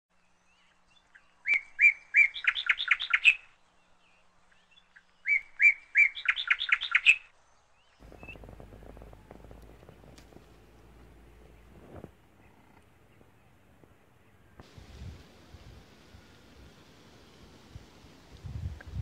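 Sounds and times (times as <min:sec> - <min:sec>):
songbird singing: 0:00.1 - 0:19.0
faint low rumbling: 0:08.0 - 0:19.0.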